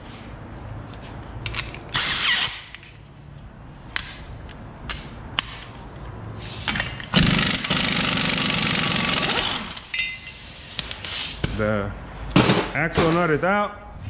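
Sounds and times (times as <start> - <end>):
impact wrench hammering: 6.7 - 10.2.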